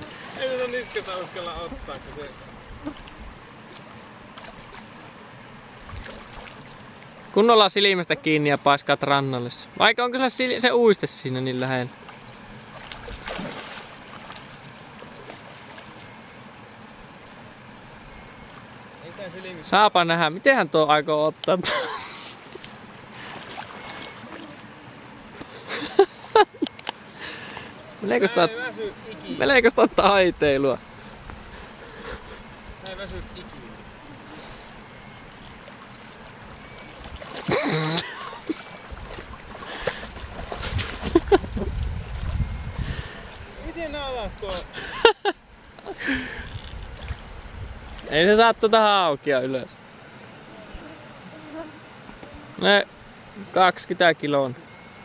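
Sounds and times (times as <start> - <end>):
lake water lapping: 0.0 - 8.4, 11.9 - 17.8, 21.6 - 44.0, 44.6 - 48.0
light wind: 0.0 - 55.0
fish thrashing in shallow water: 5.7 - 6.9, 12.1 - 16.2, 22.4 - 24.7, 34.2 - 43.6
loud water splash: 12.7 - 14.4.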